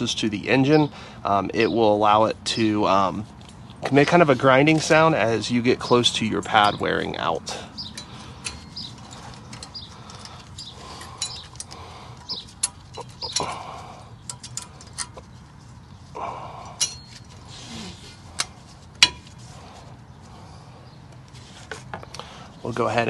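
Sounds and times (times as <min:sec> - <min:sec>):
metallic clicks and scrapes: 0:07.8 - 0:15.9
sharp metal clack: 0:16.8 - 0:17.3, 0:18.4 - 0:19.3.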